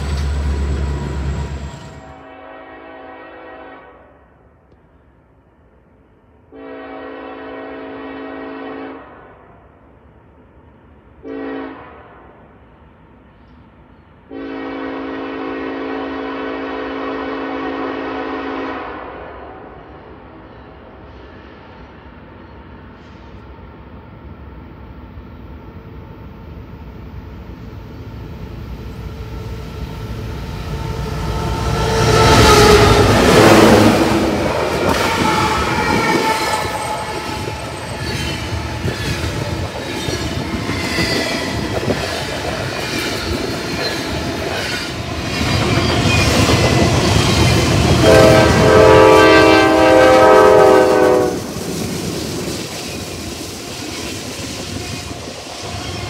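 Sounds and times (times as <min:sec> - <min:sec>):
locomotive engine rumble: 0:00.0 - 0:02.1
locomotive horn blasts: 0:02.0 - 0:04.1, 0:06.5 - 0:09.3, 0:11.2 - 0:12.2, 0:14.3 - 0:19.6, 0:30.7 - 0:38.0, 0:48.0 - 0:51.5.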